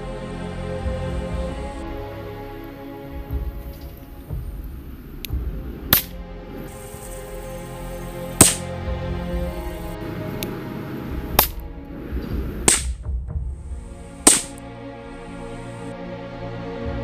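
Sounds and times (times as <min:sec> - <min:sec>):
background music: 0:00.0 - 0:17.0
sharp gunshot-like cracks: 0:08.4 - 0:08.7, 0:12.7 - 0:13.0, 0:14.3 - 0:14.6.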